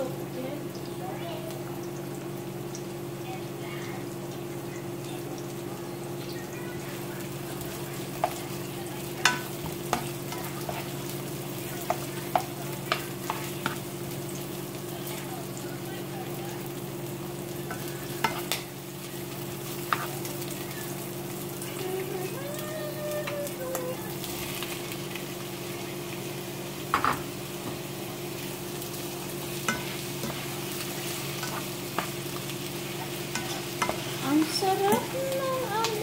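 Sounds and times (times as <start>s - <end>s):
food sizzling in a pan: 0.0s - 36.0s
spatula knocking and scraping pan: 8.1s - 13.8s, 17.7s - 18.7s, 29.6s - 35.2s.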